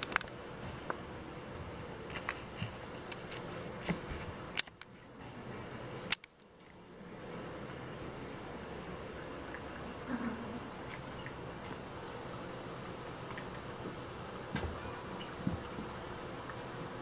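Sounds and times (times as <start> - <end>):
small clicks and scrapes: 2.0 - 5.1
sharp clicks: 6.1 - 6.5.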